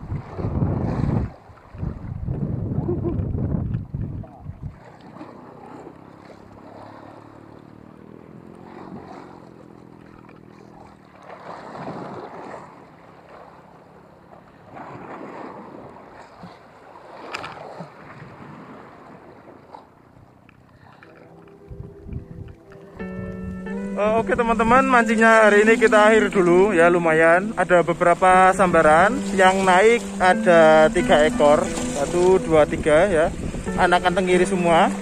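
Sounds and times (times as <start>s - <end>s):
wind on microphone: 0.0s - 5.3s, 21.6s - 35.0s
boat engine droning: 0.0s - 35.0s
waves splashing against rocks: 3.3s - 21.6s, 24.9s - 35.0s.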